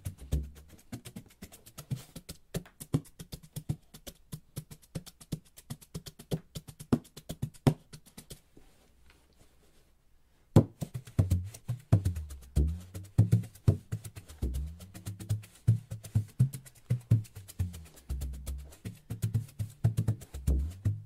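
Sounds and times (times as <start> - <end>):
hand drum taps: 10.6 - 21.0.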